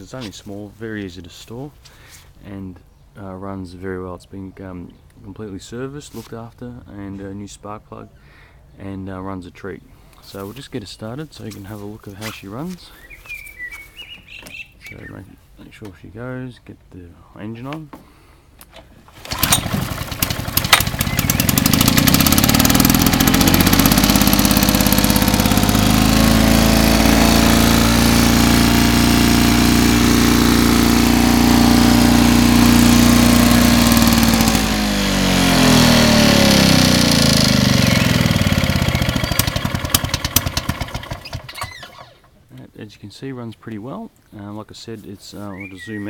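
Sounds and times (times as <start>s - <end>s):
lawn mower engine running: 19.0s - 42.3s.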